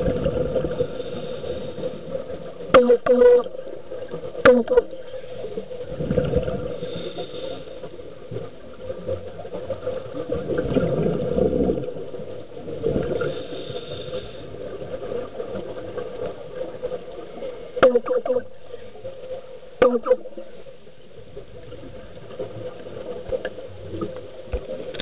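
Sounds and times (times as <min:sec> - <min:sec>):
low underwater drone: 0:00.0 - 0:25.0
regulator bubbles rushing: 0:09.7 - 0:13.2.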